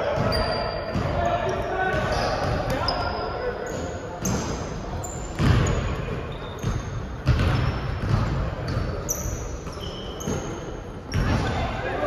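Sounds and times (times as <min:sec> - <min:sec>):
sneaker squeaks: 0:00.0 - 0:11.7
basketball bouncing on wooden floor: 0:05.4 - 0:05.8, 0:06.6 - 0:08.8.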